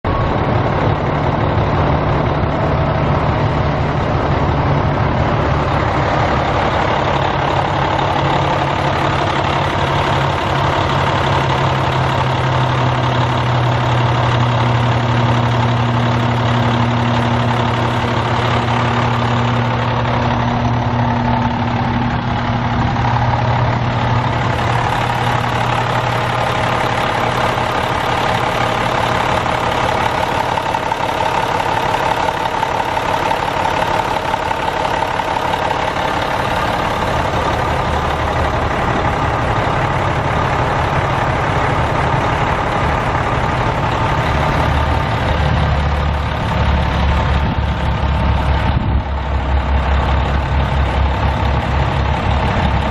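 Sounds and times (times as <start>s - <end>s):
diesel truck engine idling: 0.0s - 52.9s.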